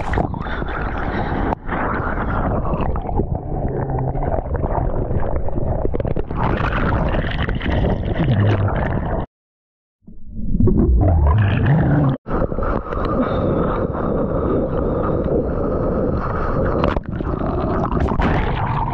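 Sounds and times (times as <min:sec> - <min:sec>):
wind on microphone: 0:00.0 - 0:08.2.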